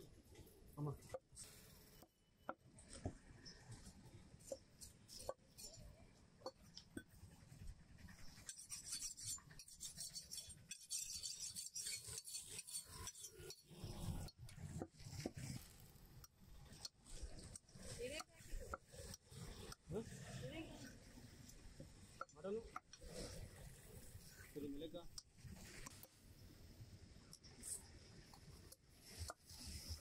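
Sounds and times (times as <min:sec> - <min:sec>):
knife rasping scraping: 0:07.5 - 0:14.3.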